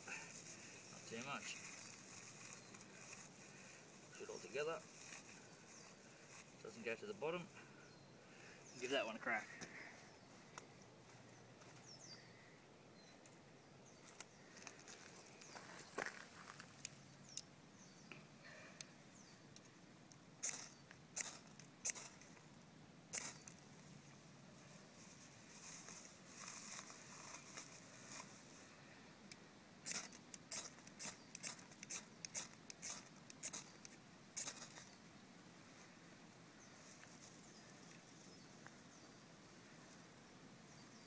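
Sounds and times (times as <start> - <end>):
rustle of dry grass: 0.0 - 7.7, 13.9 - 16.8, 23.1 - 29.1, 34.4 - 41.0.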